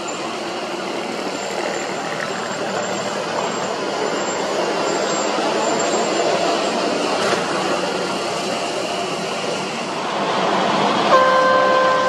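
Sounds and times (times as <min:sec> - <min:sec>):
heavy diesel engines running: 0:00.0 - 0:12.0.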